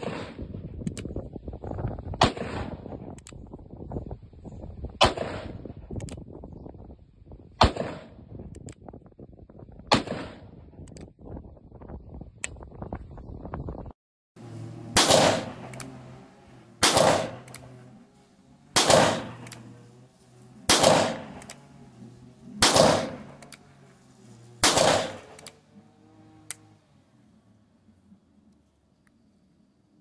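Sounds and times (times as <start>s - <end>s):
gunshot echo: 0.0s - 0.6s, 2.2s - 3.0s, 5.0s - 5.7s, 7.6s - 8.3s, 9.9s - 10.6s, 14.9s - 16.0s, 16.8s - 17.8s, 18.8s - 19.7s, 20.7s - 21.4s, 22.6s - 23.4s, 24.6s - 25.5s
revolver gunshots: 0.0s - 0.6s, 2.1s - 3.1s, 5.0s - 5.8s, 7.6s - 8.4s, 9.9s - 10.8s, 14.7s - 25.6s.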